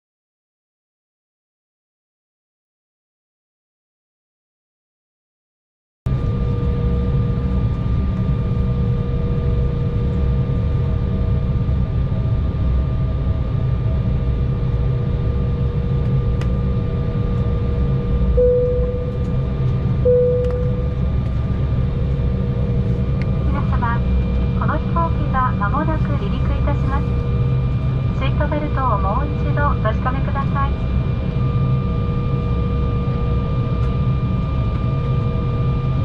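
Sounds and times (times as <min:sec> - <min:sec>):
jet engine cabin rumble: 0:06.1 - 0:36.0
steady hum: 0:16.4 - 0:33.8.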